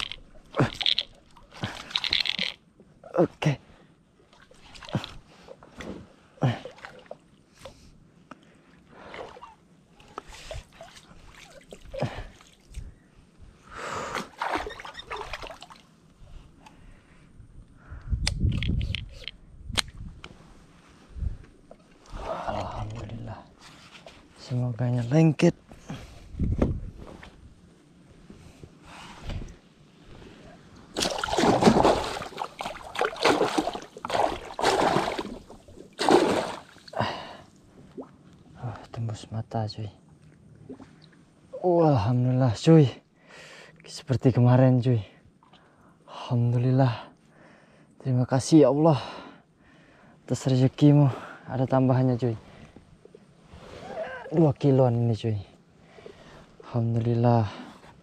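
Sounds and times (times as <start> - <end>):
water splashing: 30.9 - 37.0.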